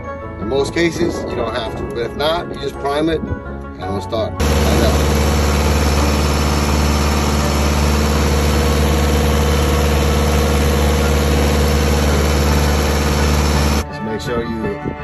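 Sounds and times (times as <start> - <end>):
diesel engine running: 4.4 - 13.8.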